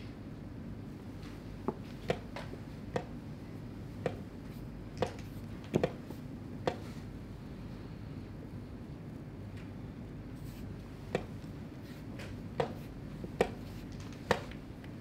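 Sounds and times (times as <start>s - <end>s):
chess pieces knocking on board: 1.7s - 3.1s, 5.0s - 6.0s, 11.1s - 11.4s, 12.6s - 14.6s.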